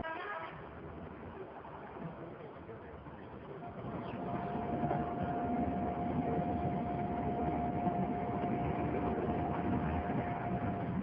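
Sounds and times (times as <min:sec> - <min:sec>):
vehicle engine rumble: 0:00.8 - 0:11.0
steady tone: 0:03.7 - 0:11.0.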